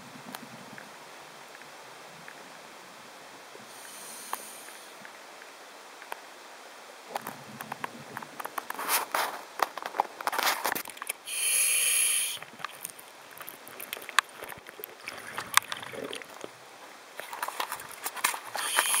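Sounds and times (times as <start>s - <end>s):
scuba regulator breath hiss: 3.6s - 5.0s, 11.2s - 12.4s, 18.5s - 19.0s
underwater clicks and crackles: 7.1s - 11.3s, 12.3s - 19.0s.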